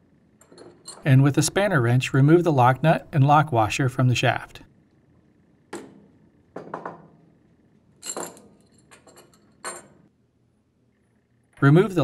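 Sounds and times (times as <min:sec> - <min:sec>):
metal wrench clinking: 0:00.4 - 0:01.1, 0:08.0 - 0:10.0.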